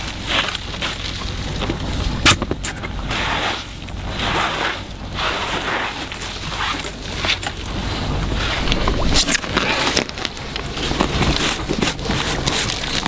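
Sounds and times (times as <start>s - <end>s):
brushing swishes on snow: 3.0s - 9.4s.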